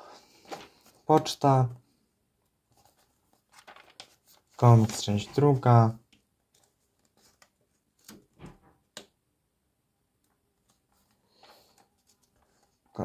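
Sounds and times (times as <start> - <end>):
magazine pages rustling: 0.3 - 1.4, 2.7 - 8.3.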